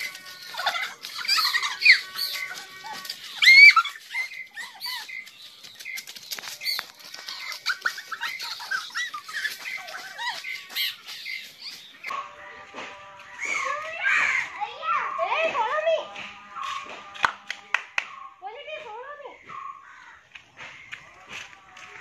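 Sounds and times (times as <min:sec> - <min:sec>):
small birds chirping: 0:00.0 - 0:12.2, 0:17.9 - 0:21.7.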